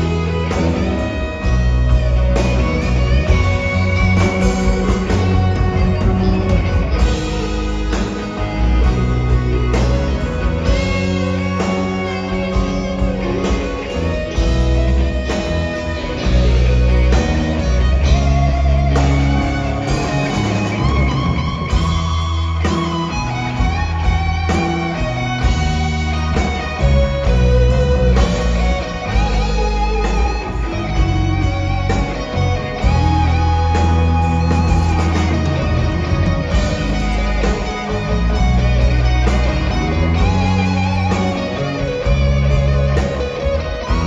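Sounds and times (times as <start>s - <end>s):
bass guitar: 0.0s - 44.0s
drums: 0.0s - 44.0s
electric guitar lead: 0.0s - 44.0s.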